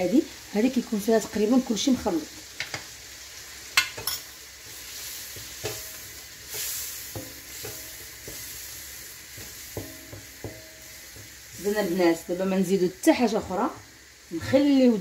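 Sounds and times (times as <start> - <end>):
chicken sizzling in a wok: 0.0 - 15.0
wooden spoon knocking and scraping: 5.4 - 8.5, 9.4 - 11.6.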